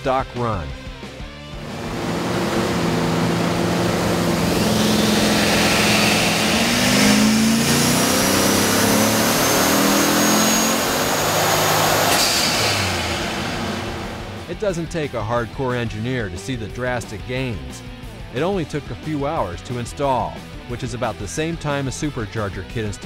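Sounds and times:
turbo whine: 1.5s - 14.5s
car engine revving: 1.5s - 14.6s.

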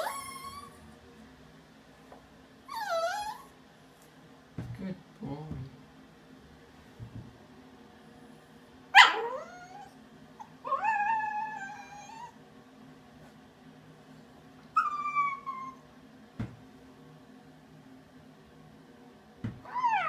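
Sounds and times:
puppy whining: 0.0s - 0.8s, 2.6s - 3.6s, 9.0s - 12.4s, 14.7s - 15.8s, 19.6s - 20.0s.

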